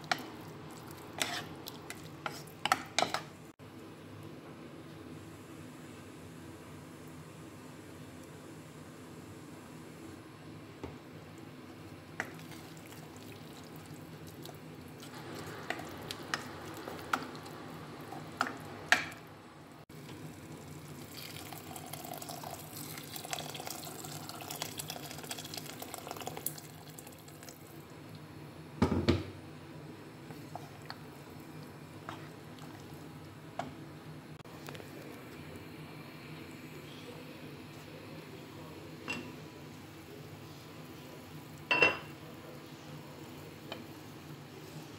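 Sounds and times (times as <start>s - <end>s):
wooden spatula scraping a pot: 0.1s - 3.2s
water pouring into a pot: 20.3s - 27.6s.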